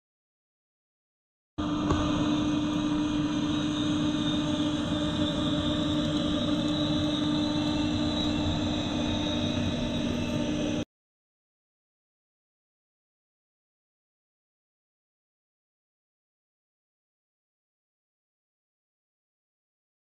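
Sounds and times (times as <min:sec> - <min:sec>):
pool cleaner motor hum underwater: 0:01.6 - 0:10.8.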